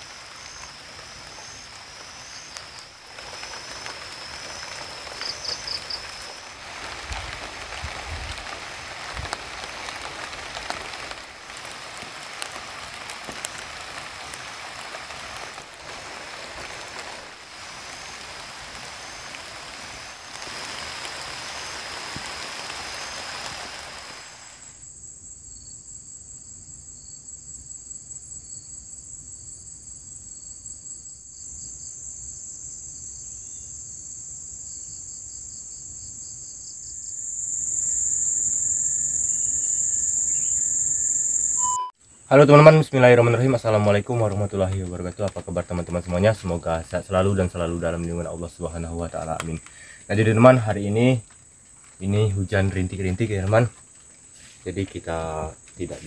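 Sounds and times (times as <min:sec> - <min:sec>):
steady rain pattering: 0:00.0 - 0:24.8, 0:42.3 - 0:56.0
insect trill: 0:00.0 - 0:56.0.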